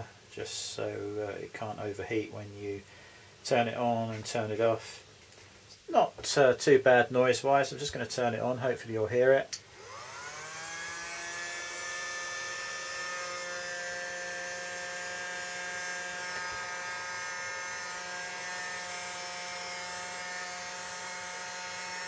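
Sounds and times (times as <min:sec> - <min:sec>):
hot air gun fan whining: 0:09.7 - 0:22.0.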